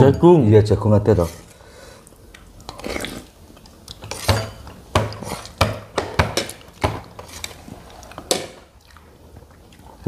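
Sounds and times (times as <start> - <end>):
cutlery clinking against plates: 4.0 - 7.6.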